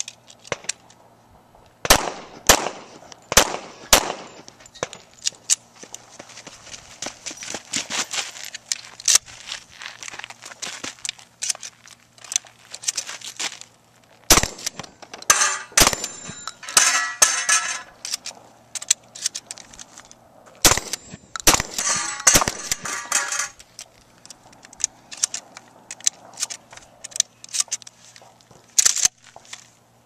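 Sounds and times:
shotgun shots: 1.8s - 4.4s, 14.3s - 17.4s, 20.6s - 23.3s
steel plates clanging: 14.9s - 18.0s, 20.8s - 23.6s
shells clicking into magazine: 18.0s - 20.1s, 20.8s - 28.0s.

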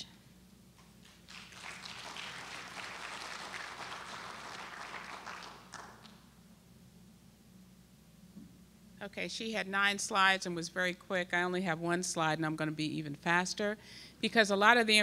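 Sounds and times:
audience applauding: 1.0s - 6.2s.

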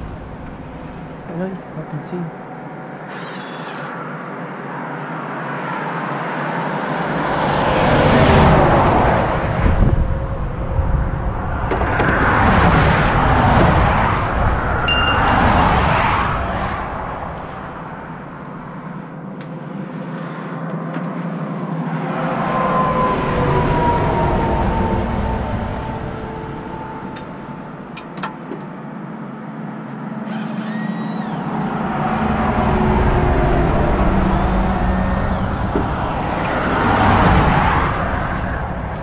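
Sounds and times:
highway traffic passing: 0.0s - 39.0s
vehicle falling whine: 7.4s - 20.6s, 21.3s - 39.0s.

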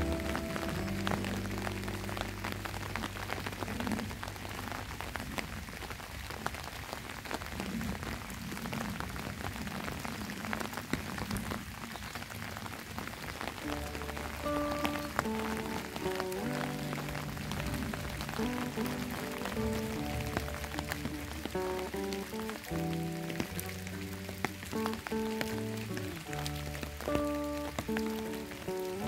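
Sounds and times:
background music: 0.0s - 4.8s, 13.6s - 29.0s
rain with drops ticking: 0.0s - 29.0s.

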